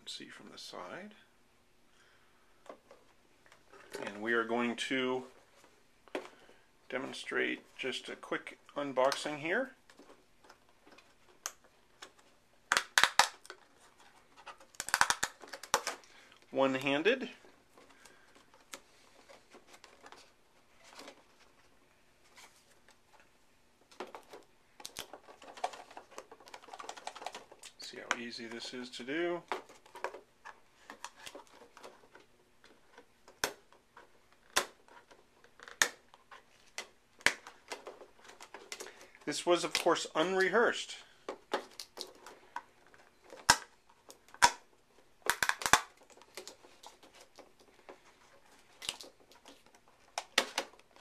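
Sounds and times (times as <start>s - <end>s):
plastic packaging clicking and snapping: 9.9s - 16.5s, 23.9s - 28.2s, 29.5s - 40.0s, 41.2s - 51.0s.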